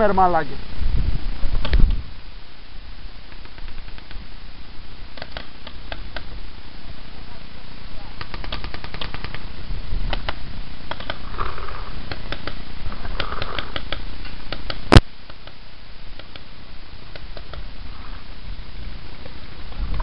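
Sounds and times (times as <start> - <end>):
low rumble of wind: 0.0 - 20.0
paintball markers firing: 3.3 - 4.2, 5.2 - 6.3, 8.2 - 9.5, 10.1 - 15.6, 16.2 - 16.5, 17.1 - 17.7.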